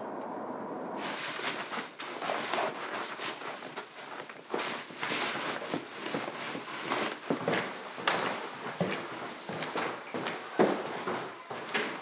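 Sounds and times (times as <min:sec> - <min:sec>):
nylon backpack rustling: 0:01.0 - 0:10.3.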